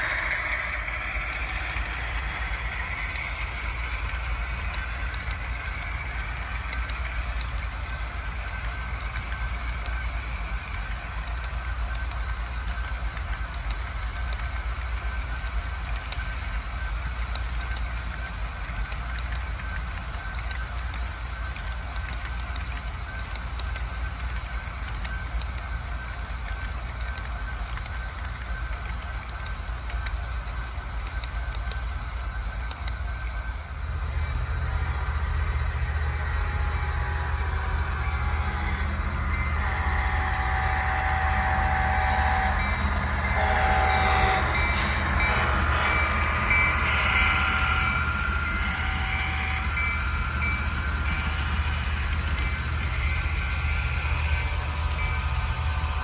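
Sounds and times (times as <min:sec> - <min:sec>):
wheels clicking over rail joints: 0:00.0 - 0:31.9
low hum: 0:00.0 - 0:56.0
model train cars rolling: 0:00.0 - 0:56.0.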